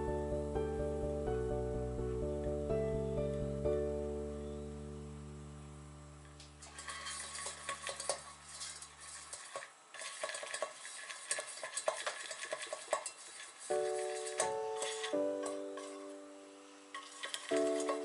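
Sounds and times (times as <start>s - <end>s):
background music: 0.0s - 6.2s, 13.8s - 18.0s
pastry brush scraping muffin tin: 6.6s - 16.2s, 16.9s - 18.0s.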